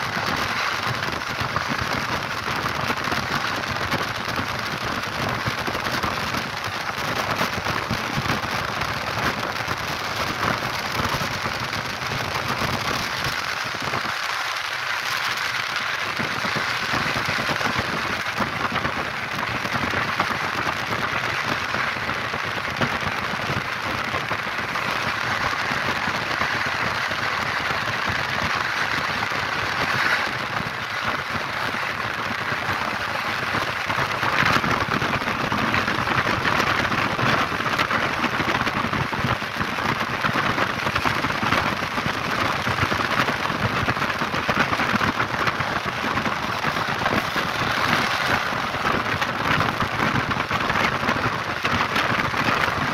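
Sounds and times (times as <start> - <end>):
train wheel and wind noise: 7.7 - 38.8.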